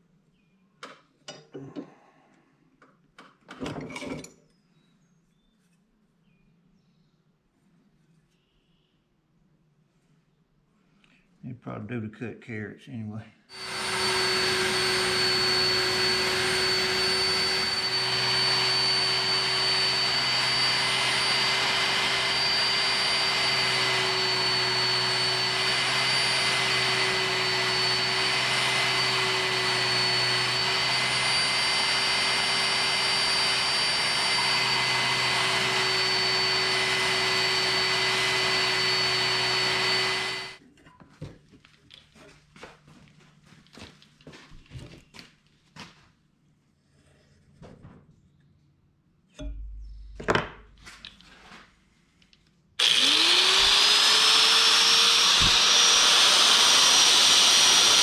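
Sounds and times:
belt sander whining: 13.5s - 40.6s, 52.8s - 58.0s.

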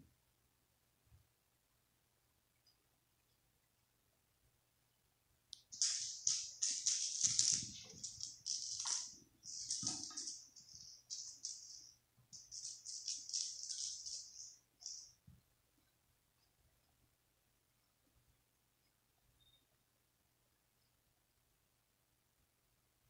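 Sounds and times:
toy ball clattering on tiles: 5.7s - 15.2s.

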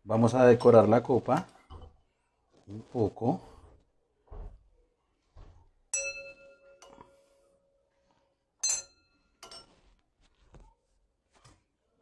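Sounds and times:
stemmed glass clinking and ringing: 5.9s - 7.4s, 8.6s - 9.9s
glassware taps and knocks: 8.6s - 9.8s.

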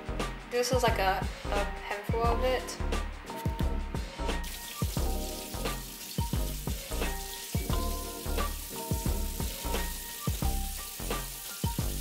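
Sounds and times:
background music with beat: 0.0s - 12.0s
water running from tap: 4.2s - 12.0s.

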